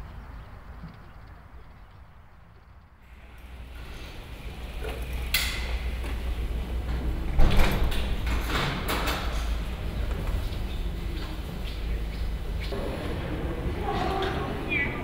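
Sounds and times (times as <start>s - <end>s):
bicycle parts clicking and rattling: 3.3s - 9.7s.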